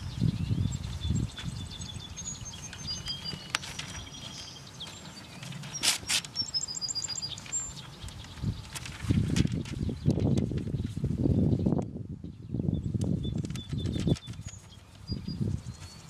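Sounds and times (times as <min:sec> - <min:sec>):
birds chirping: 0:00.0 - 0:16.0
paper rustling: 0:02.7 - 0:10.9, 0:13.4 - 0:15.0.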